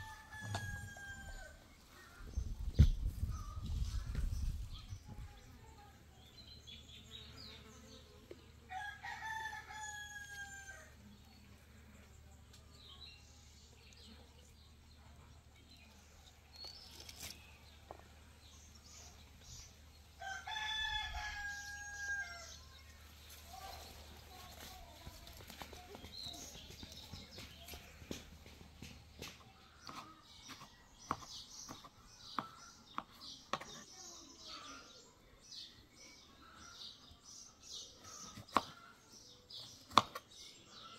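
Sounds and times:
rooster crowing: 0.0 - 1.6
small birds chirping faintly: 0.0 - 40.9.

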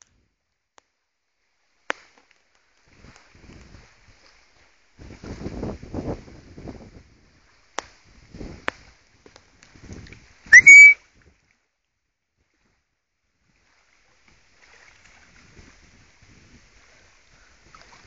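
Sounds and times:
person whistling: 10.5 - 11.0.

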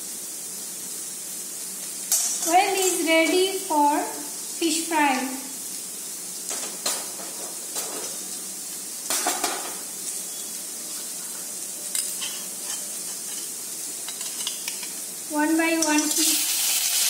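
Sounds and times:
hot oil sizzling: 0.0 - 17.0.

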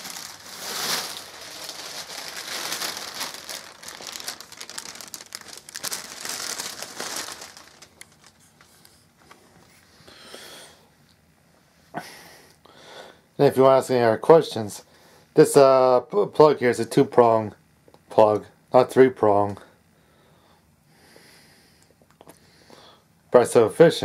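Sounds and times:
plastic bag crinkling: 0.0 - 9.3.

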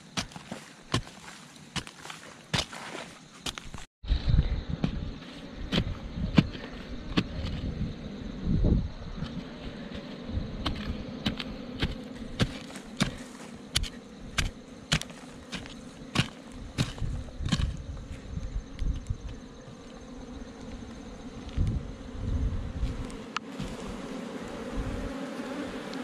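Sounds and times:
digging stick striking soil: 0.0 - 3.9, 10.6 - 17.8
bees buzzing: 4.5 - 26.0.

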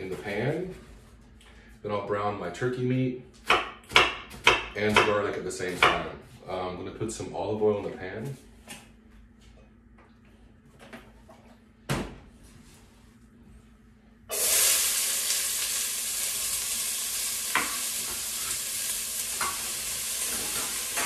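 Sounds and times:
onion sizzling in hot oil: 14.3 - 21.0.

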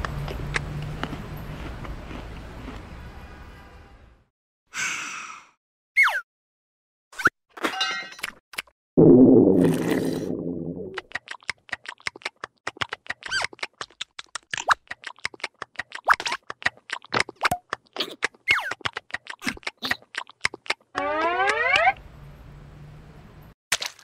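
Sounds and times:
cartoon squeaky mouth sounds: 6.0 - 6.2, 13.2 - 13.6, 17.4 - 20.2
falling squeal: 21.0 - 22.0.

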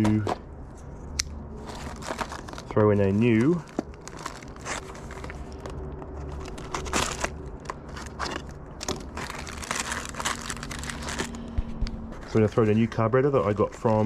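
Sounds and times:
plastic packaging crinkling: 1.4 - 11.5.

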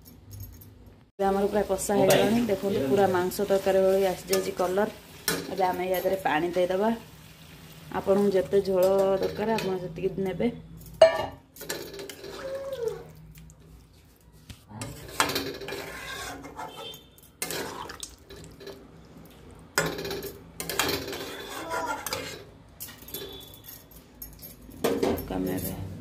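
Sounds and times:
metal spatula scraping pan: 1.9 - 6.8, 11.6 - 13.0, 14.8 - 18.8, 19.8 - 23.6
stirring watery curry: 11.9 - 19.4.

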